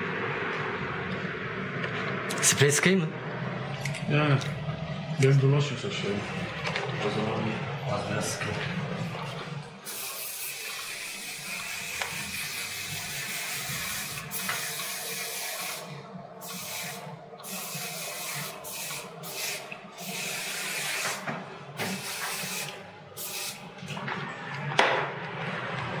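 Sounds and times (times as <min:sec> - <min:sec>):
aerosol hairspray spraying: 0:09.9 - 0:21.2, 0:21.8 - 0:23.6.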